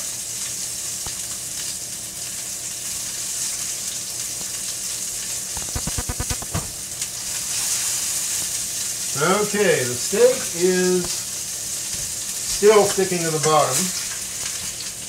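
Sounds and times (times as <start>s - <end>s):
steak sizzling in a pan: 0.0s - 15.0s
rapid low knocks: 5.6s - 6.8s.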